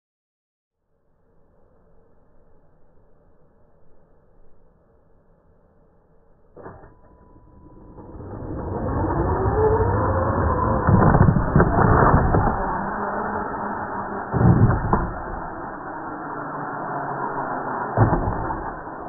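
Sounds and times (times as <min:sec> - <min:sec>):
electric motor whine: 0:06.6 - 0:19.0
tyre noise on asphalt: 0:09.0 - 0:19.0.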